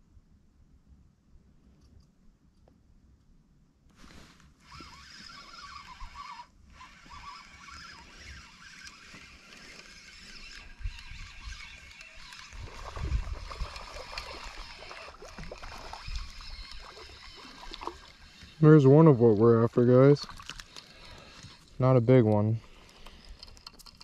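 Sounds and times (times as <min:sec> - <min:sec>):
fishing reel cranking: 0:04.6 - 0:21.9, 0:22.6 - 0:24.0
water sloshing: 0:04.6 - 0:24.0.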